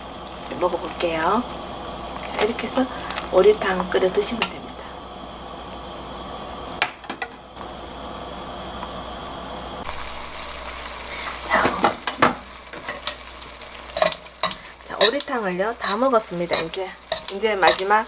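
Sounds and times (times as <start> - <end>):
soup bubbling in pot: 0.0 - 6.5, 9.8 - 17.9
ladle clinking: 13.9 - 18.0
kitchen scissors snipping meat: 14.0 - 18.0.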